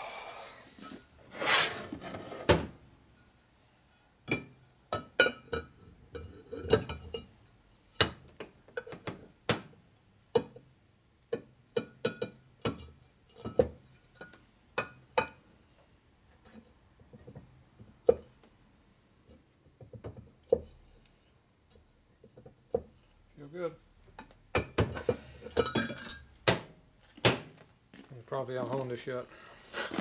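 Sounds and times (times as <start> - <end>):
metal parts clinking: 25.6 - 26.3.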